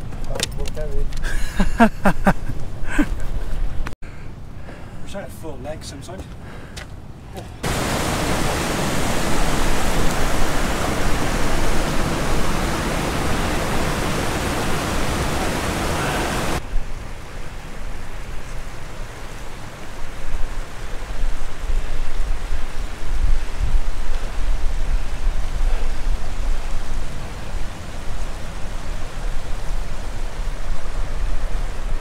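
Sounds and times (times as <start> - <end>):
wind buffeting microphone: 6.5 - 17.2, 19.8 - 32.0
stream rushing over rocks: 7.6 - 32.0.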